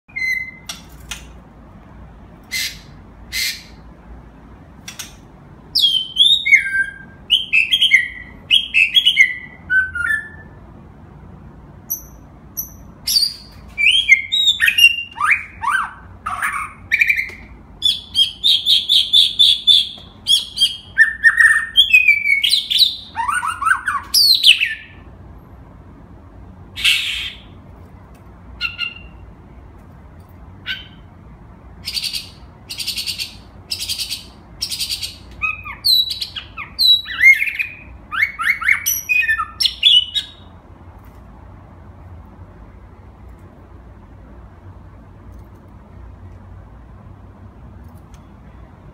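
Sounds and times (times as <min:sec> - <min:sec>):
bird singing whistled phrases: 0:00.1 - 0:00.7, 0:05.8 - 0:10.6, 0:11.9 - 0:25.0, 0:31.8 - 0:40.5.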